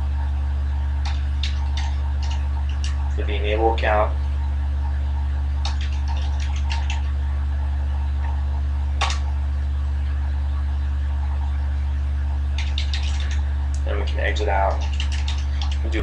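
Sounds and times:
steady low hum: 0.0 - 16.0
keyboard typing: 1.0 - 3.1, 5.6 - 7.1, 9.0 - 9.3, 12.6 - 13.4, 14.7 - 15.9.

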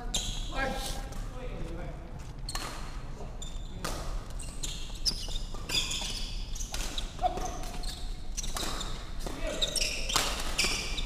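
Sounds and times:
shoes squeaking on court: 0.0 - 1.3, 2.1 - 11.0
racket hitting shuttlecock: 6.6 - 7.8, 8.4 - 11.0.

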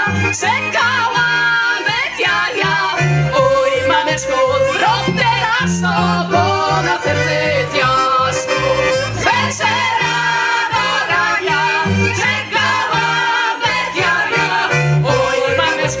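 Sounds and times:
accordion: 0.0 - 16.0
double bass line: 0.0 - 16.0
violin: 0.0 - 16.0
women singing together: 0.0 - 16.0.

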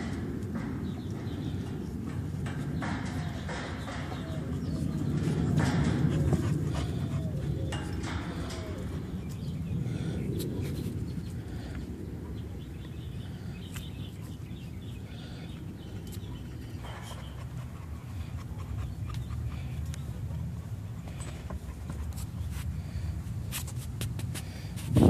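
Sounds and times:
steady low rumble: 0.0 - 25.0
dog panting: 0.8 - 10.4, 14.2 - 22.8
soft scuffling and clicks: 23.5 - 25.0.

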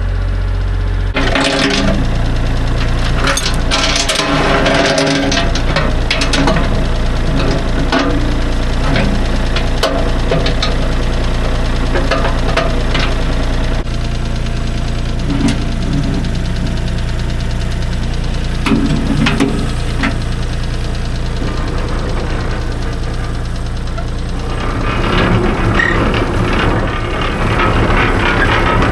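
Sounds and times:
tractor engine running: 0.0 - 28.9
steel chain clinking: 2.9 - 5.8.

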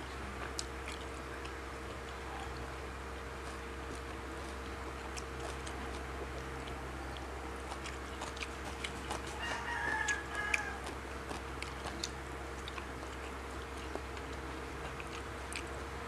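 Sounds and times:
chewing crisp vegetables: 0.0 - 16.0
faint steady hum: 0.0 - 16.0
rooster crowing: 9.2 - 11.0.

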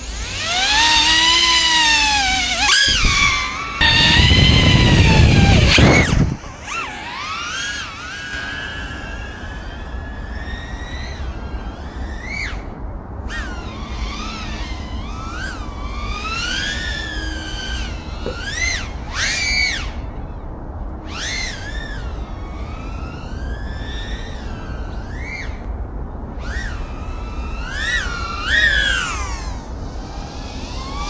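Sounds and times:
drone motors whining: 0.0 - 31.0
wind noise rushing: 1.9 - 12.0.

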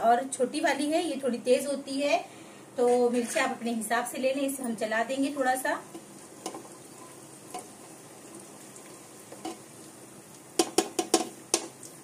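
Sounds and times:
spices sizzling in hot oil: 2.7 - 12.0
spatula scraping pot: 2.8 - 3.6, 8.9 - 9.8
spatula knocking against pot: 10.6 - 11.8.

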